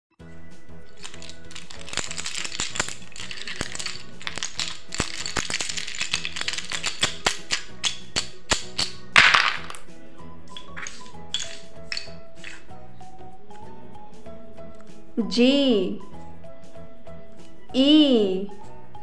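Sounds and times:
background music: 0.1s - 19.0s
toy letters clattering onto paper: 0.9s - 9.8s, 10.5s - 12.7s
toy letters rattling in hands: 0.9s - 9.8s, 10.5s - 12.7s.

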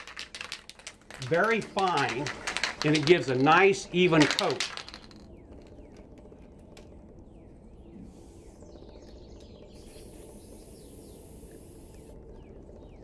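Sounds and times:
birds chirping: 1.2s - 13.0s
aerosol can spraying: 9.9s - 12.1s.

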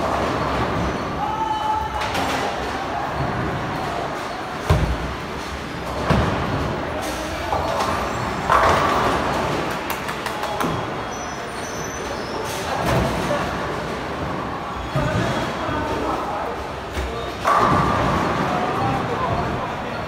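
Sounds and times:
bowling balls rumbling down lanes: 0.0s - 1.2s, 1.9s - 11.1s, 12.0s - 20.0s
bowling pins crashing: 5.9s - 6.8s, 17.4s - 19.5s.

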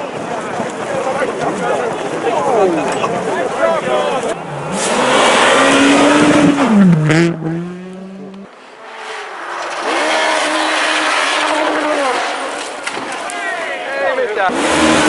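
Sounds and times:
rally car engine revving: 4.3s - 13.2s, 14.4s - 15.0s.

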